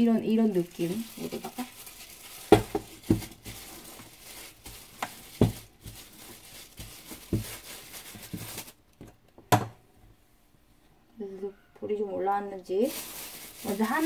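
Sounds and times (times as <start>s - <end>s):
plastic glove crinkling: 0.0s - 9.2s, 12.6s - 14.0s.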